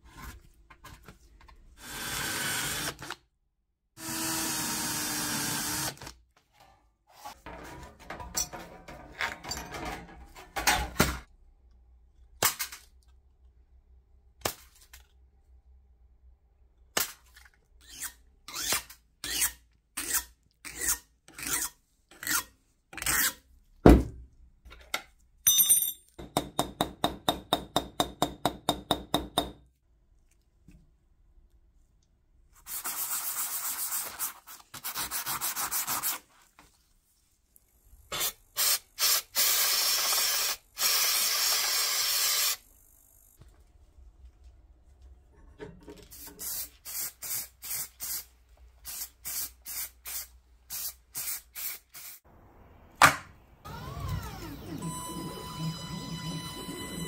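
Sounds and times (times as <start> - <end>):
aerosol spray can hissing: 46.4 - 52.2.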